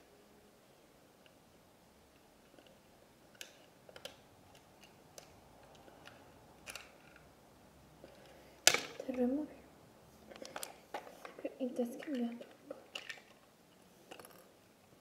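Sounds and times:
small plastic parts clicking: 2.4 - 7.3, 10.3 - 11.4, 12.0 - 13.5, 14.1 - 14.5.

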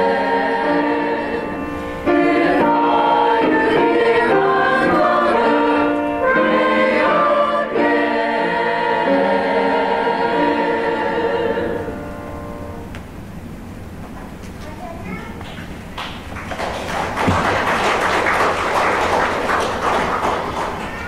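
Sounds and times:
choir singing held chords: 0.0 - 12.9.

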